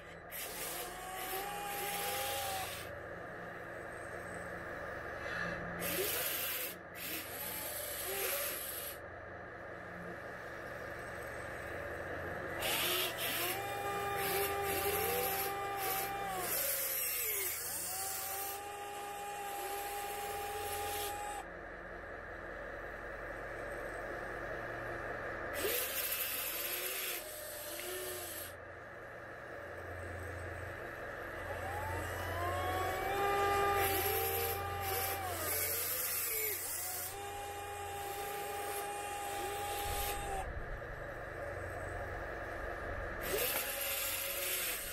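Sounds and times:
electric motor whine: 0.0s - 9.1s, 9.8s - 21.5s, 25.5s - 44.9s
hiss: 5.2s - 9.0s.

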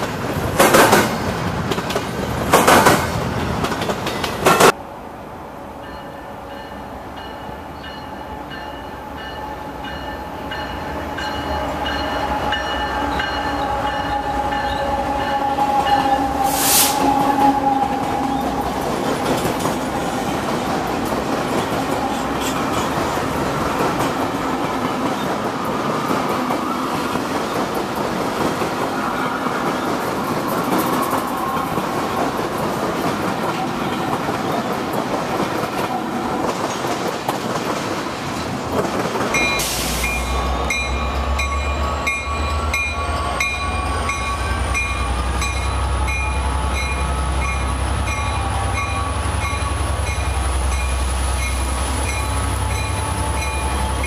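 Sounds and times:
freight train wheels clattering: 0.0s - 4.8s
locomotive bell ringing: 5.8s - 16.4s, 39.3s - 54.0s
diesel locomotive engine hum: 38.0s - 54.0s.

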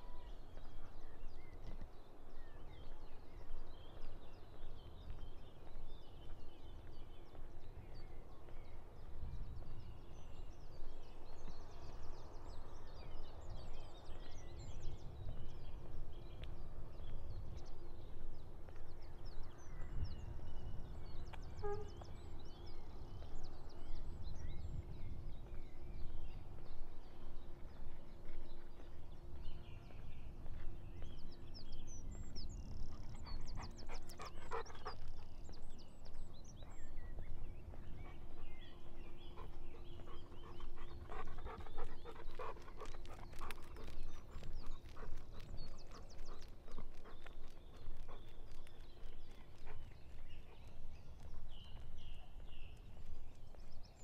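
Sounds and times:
birds singing: 0.0s - 54.0s
dog panting: 32.9s - 35.2s, 37.9s - 50.6s.

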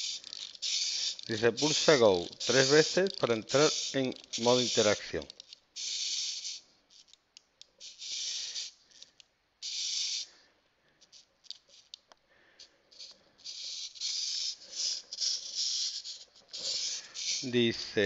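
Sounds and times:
small clicks: 0.0s - 5.6s, 6.9s - 7.9s, 8.9s - 9.3s, 10.9s - 17.5s
wind-up mechanism whirring: 0.0s - 10.3s, 11.0s - 12.0s, 12.9s - 17.6s.

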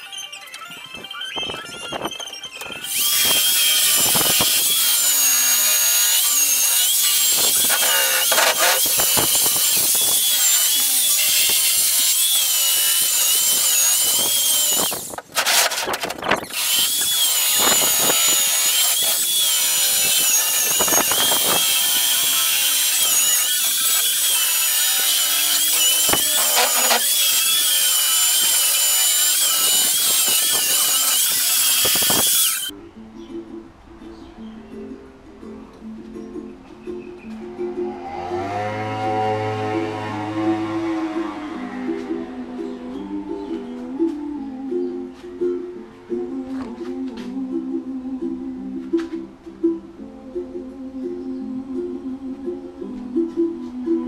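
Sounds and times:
electric router whining: 1.9s - 32.7s.

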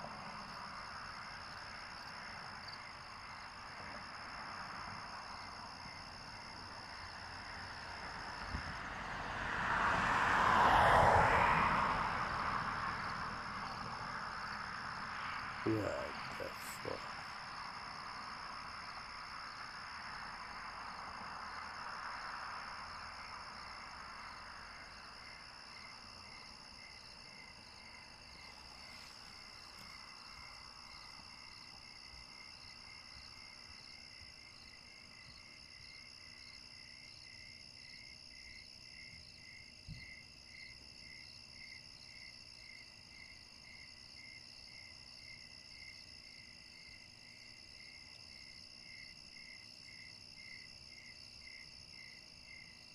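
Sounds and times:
crickets trilling: 0.0s - 52.9s.

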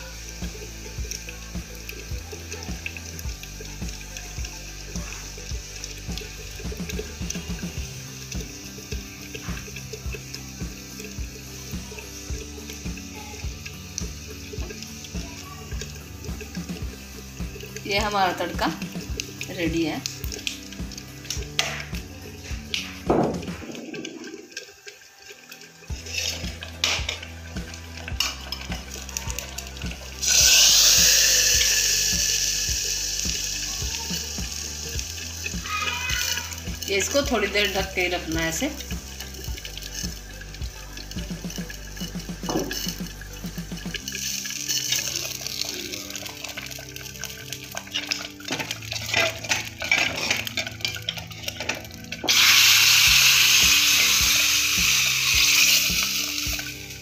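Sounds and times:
hot oil sizzling: 0.0s - 57.0s
ladle scraping and knocking in pot: 47.7s - 52.4s.

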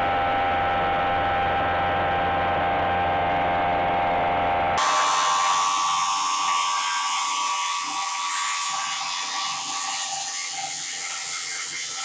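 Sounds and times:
milling cutter whirring through plastic: 4.8s - 12.0s.

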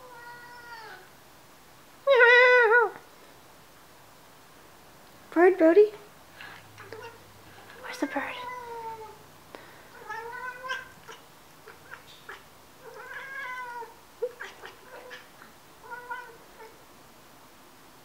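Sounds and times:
cats chirping: 6.4s - 9.2s, 9.9s - 16.8s.

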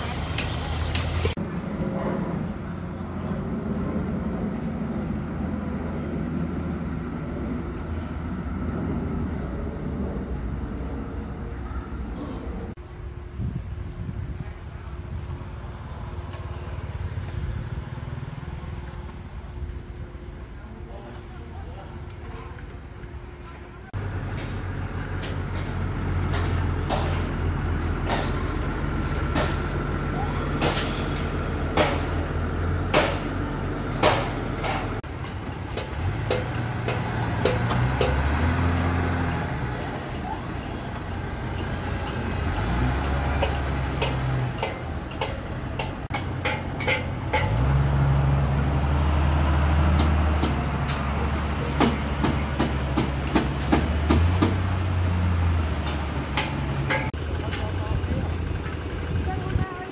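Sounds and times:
diesel machinery engine drone: 0.0s - 59.9s
metallic knocks and clanks: 24.2s - 29.8s, 34.0s - 38.3s, 43.3s - 47.8s, 55.8s - 57.7s.

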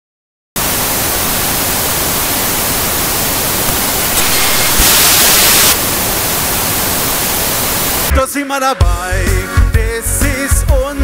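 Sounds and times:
television static hiss: 0.6s - 8.1s.

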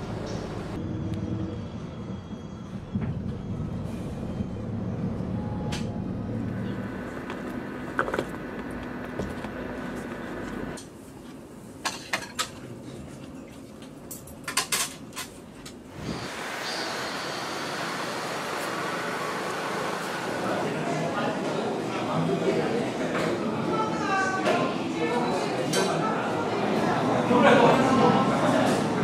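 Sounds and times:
moving vehicle rumble: 0.0s - 10.8s
room hum: 2.9s - 11.7s.

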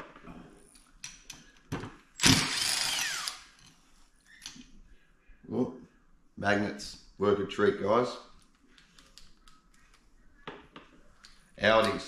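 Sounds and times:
cordless drill running: 2.2s - 3.5s.

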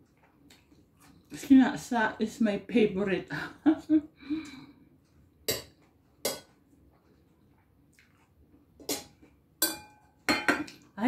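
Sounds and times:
cutlery clinking on plate: 8.9s - 10.8s.

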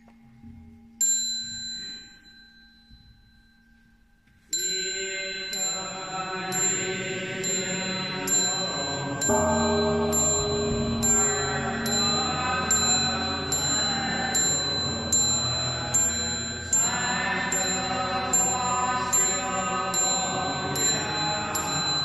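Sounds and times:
bright bell-like ding: 0.6s - 3.6s, 7.6s - 22.0s
background music bed: 5.7s - 22.0s
chime strikes: 6.7s - 22.0s.

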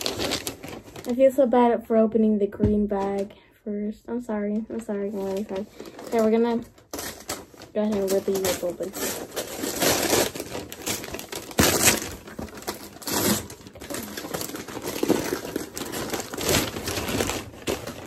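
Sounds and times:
wrapping paper crinkling and tearing: 0.0s - 1.5s, 4.7s - 18.0s
paper box lid ripping: 8.4s - 18.0s.

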